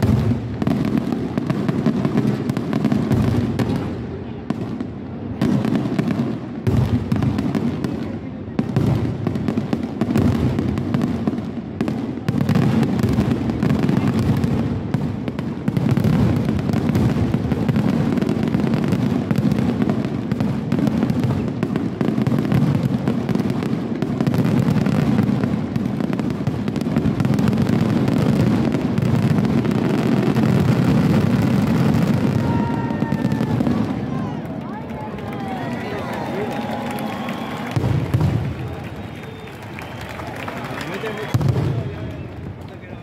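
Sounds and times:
fireworks bursting and crackling: 0.0 - 43.0
whistling fireworks: 0.0 - 43.0.

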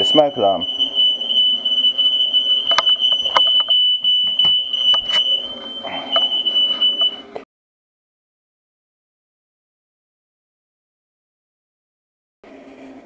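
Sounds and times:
smoke alarm high-pitched tone: 0.0 - 7.3.

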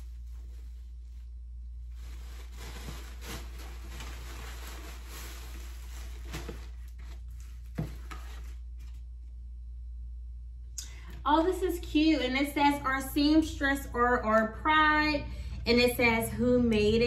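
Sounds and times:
cloth bag and wrapping rustling: 0.0 - 8.5
steady low hum: 0.0 - 17.0.

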